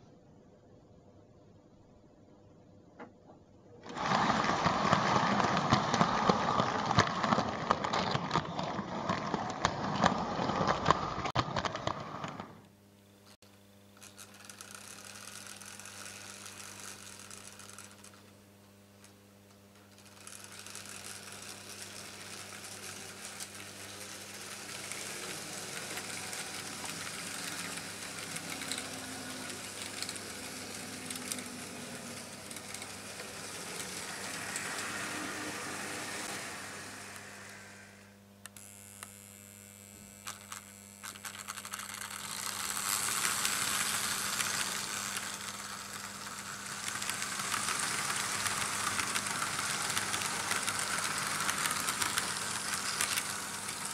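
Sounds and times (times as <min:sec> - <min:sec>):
electric hum: 0:00.0 - 0:53.9
model train wheels rattling: 0:03.8 - 0:12.6, 0:14.0 - 0:18.2, 0:19.8 - 0:38.0, 0:40.3 - 0:53.9
track clicks: 0:20.1 - 0:37.8, 0:40.3 - 0:53.9.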